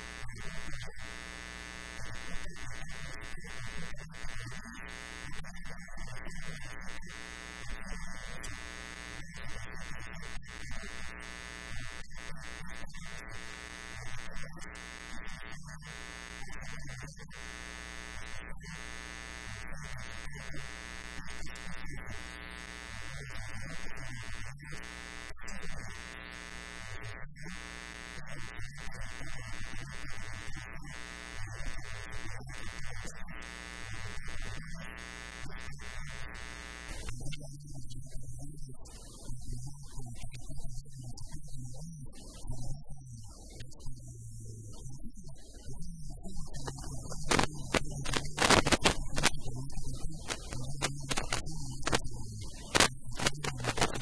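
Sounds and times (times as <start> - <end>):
steady electrical buzz: 0.0 - 37.1, 46.7 - 54.0.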